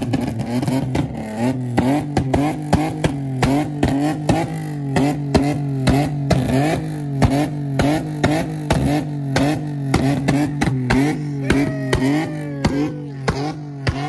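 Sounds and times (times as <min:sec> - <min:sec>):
car engine revving in blips: 0:00.0 - 0:14.0.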